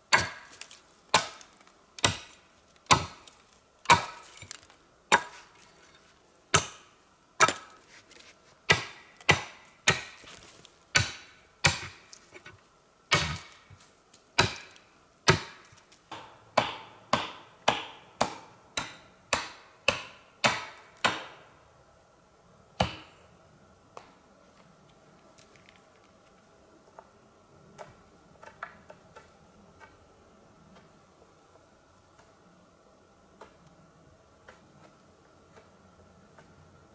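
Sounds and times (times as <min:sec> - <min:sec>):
wood chopping blows: 0:13.1 - 0:13.6.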